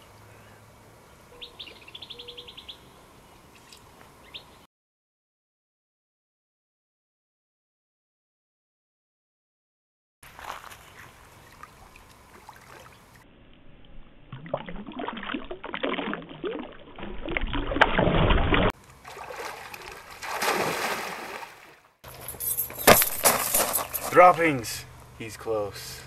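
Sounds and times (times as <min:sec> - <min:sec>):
water splashing and sloshing: 0:10.3 - 0:22.1.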